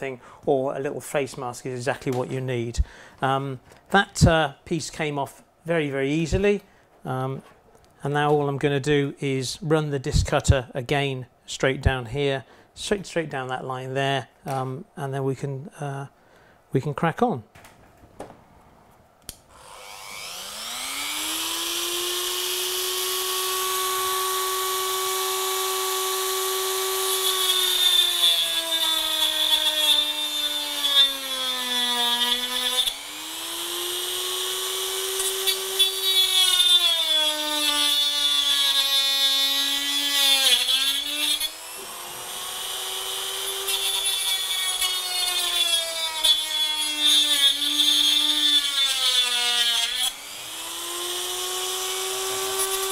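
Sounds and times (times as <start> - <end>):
rotary tool whining: 19.5 - 52.9.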